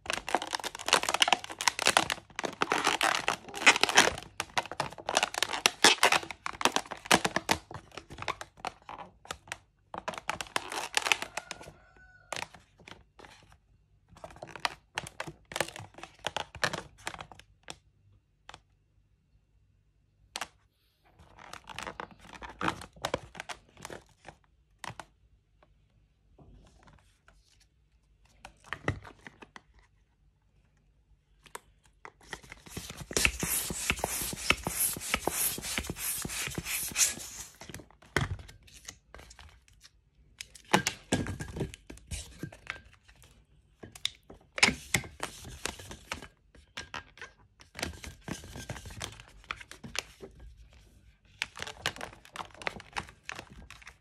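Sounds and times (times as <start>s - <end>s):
balloons rubbing and creaking: 32.5s - 37.7s.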